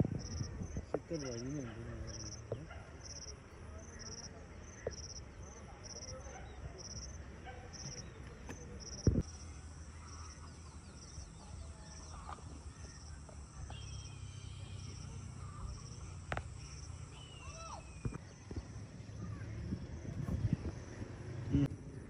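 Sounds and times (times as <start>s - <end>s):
insect chirping: 0.1s - 6.2s, 6.8s - 8.0s, 8.6s - 22.0s
birds whistling: 8.9s - 18.6s.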